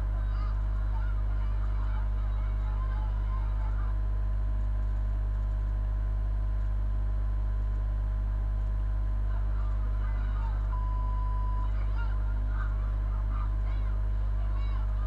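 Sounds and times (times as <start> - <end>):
faint indistinct voices: 0.0 - 5.1, 9.0 - 15.0
steady low hum: 0.0 - 15.0.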